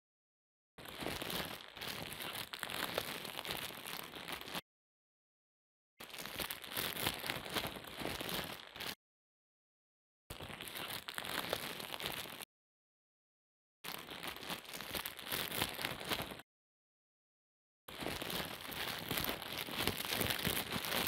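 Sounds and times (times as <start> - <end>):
dense crackling crinkling noise: 0.8 - 4.6, 6.0 - 9.0, 10.3 - 12.5, 13.8 - 16.5, 17.9 - 21.0.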